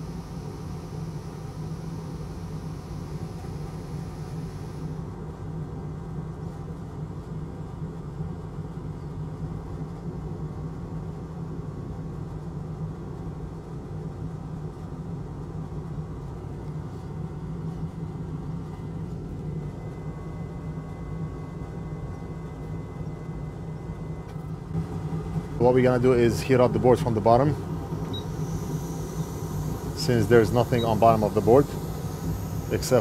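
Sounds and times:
equipment low drone: 0.0s - 5.1s, 16.9s - 33.0s.

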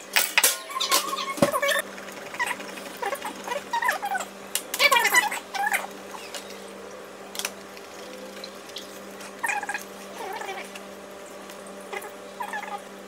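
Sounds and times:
steady low hum: 0.0s - 13.0s
pet giving high-pitched calls: 8.7s - 10.7s, 11.9s - 12.8s.

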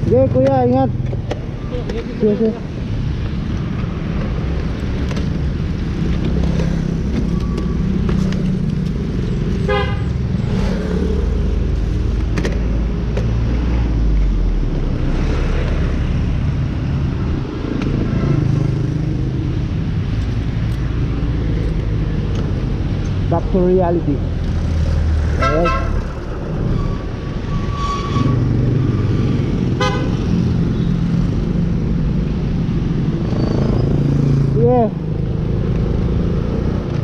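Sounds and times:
street traffic rumble: 0.0s - 37.0s
vehicle horn tooting: 9.7s - 10.1s, 25.4s - 26.0s, 29.8s - 30.1s.

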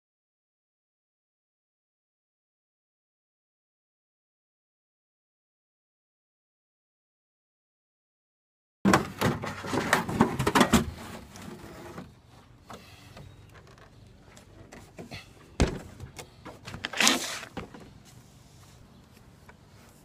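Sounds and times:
short rustle: 16.8s - 20.0s.

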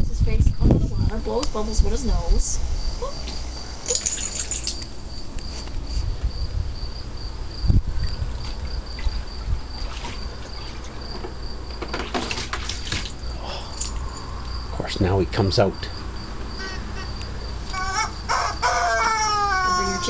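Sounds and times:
crickets chirping: 0.0s - 20.0s
water sloshing and dribbling: 8.3s - 13.3s.

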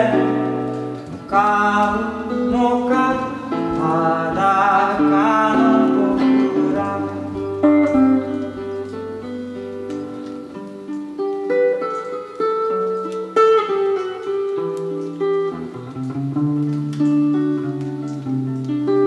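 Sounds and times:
man singing: 0.0s - 8.6s
guitar plucked chords and melody: 0.0s - 19.0s.

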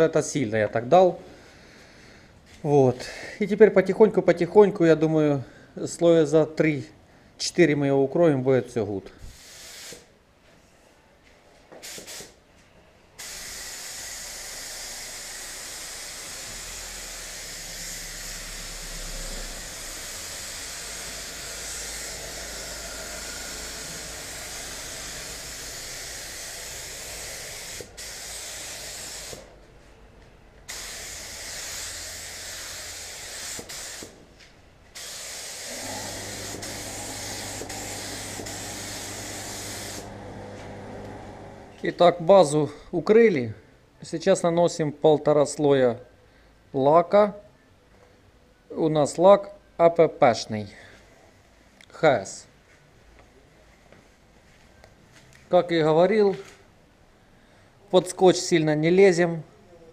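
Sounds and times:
spray gun hissing: 9.3s - 10.1s, 13.2s - 29.5s, 30.7s - 34.2s, 35.0s - 42.1s
low steady hum: 35.7s - 42.3s.

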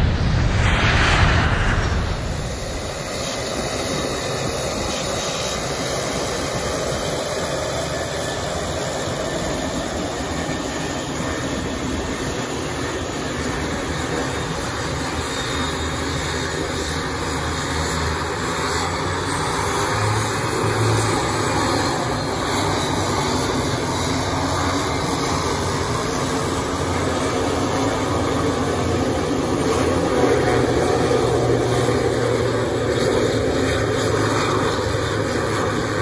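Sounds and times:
turboprop engines running: 16.6s - 36.0s.

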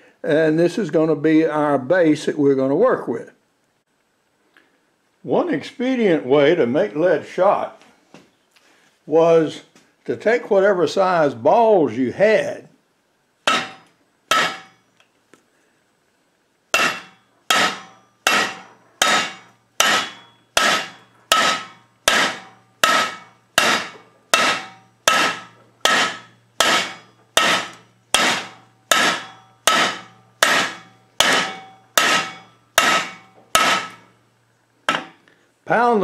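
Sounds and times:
hammer blows on metal: 13.5s - 14.8s, 16.8s - 34.2s.

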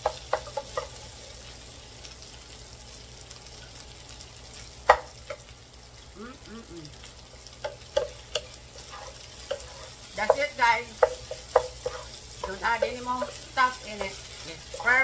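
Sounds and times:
wooden spatulas clacking on skillet: 0.0s - 1.0s, 7.6s - 15.0s
rice frying sizzle: 0.0s - 15.0s.

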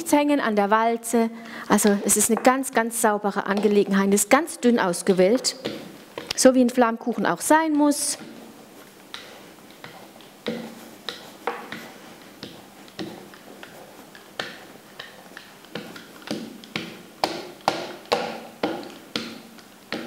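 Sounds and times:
dough roller tapping on stone: 1.8s - 4.3s, 5.0s - 6.5s, 8.1s - 20.0s.

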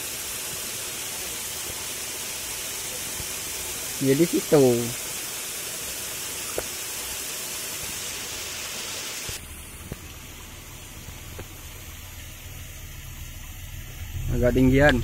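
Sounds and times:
steady outdoor hiss: 0.0s - 15.0s
low rumble: 9.4s - 15.0s.

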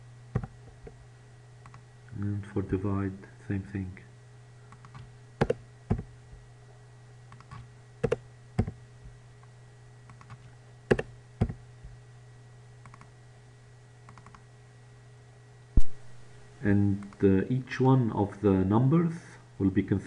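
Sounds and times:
low steady hum: 0.0s - 20.0s
mouse clicks: 1.6s - 1.8s, 7.3s - 8.8s, 10.1s - 11.6s, 12.8s - 13.1s, 14.1s - 14.4s
keyboard keystrokes: 4.7s - 6.0s, 7.3s - 8.8s, 10.1s - 11.6s, 14.1s - 14.4s.

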